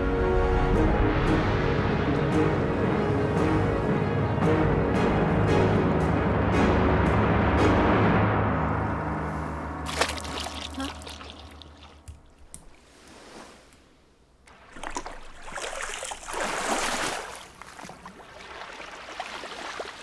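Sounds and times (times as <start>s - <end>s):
low dark score music with drum: 0.0s - 9.9s
water splashing and sloshing: 8.6s - 20.0s.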